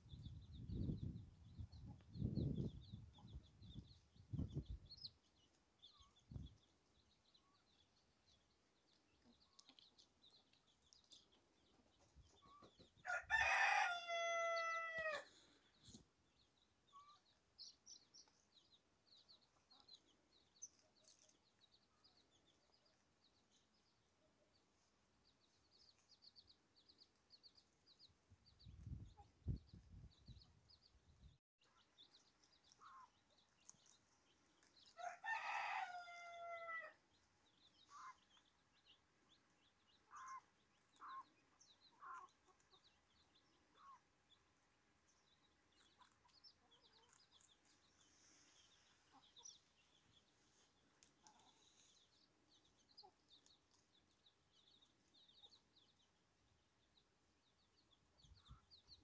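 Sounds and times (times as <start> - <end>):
wind rumble on microphone: 0.0 - 5.1, 6.2 - 6.6, 28.4 - 31.4
chicks peeping: 0.0 - 35.2, 35.9 - 59.0
rooster crowing: 13.0 - 15.3, 35.0 - 37.0
hen clucking: 40.1 - 42.6.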